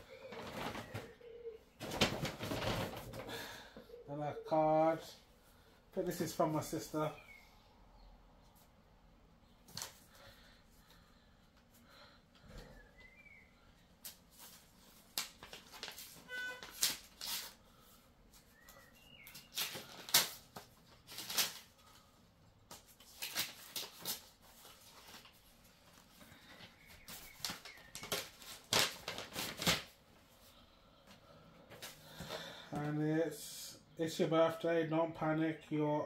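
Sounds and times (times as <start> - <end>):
paper rustling and crinkling: 0.2 - 1.1, 1.8 - 3.4, 14.0 - 22.1, 22.7 - 30.5.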